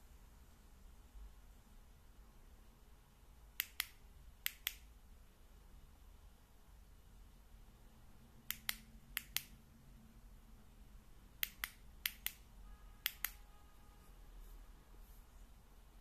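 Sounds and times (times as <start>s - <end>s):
flashlight switch clicking: 8.5s - 9.6s, 11.4s - 12.4s, 13.0s - 13.4s.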